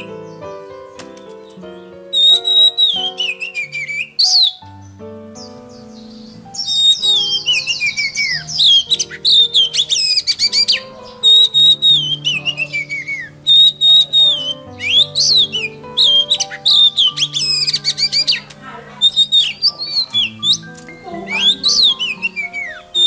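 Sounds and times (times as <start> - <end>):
bird whistling and chattering: 0.0 - 0.4, 2.1 - 23.0
background music low notes: 0.0 - 23.0.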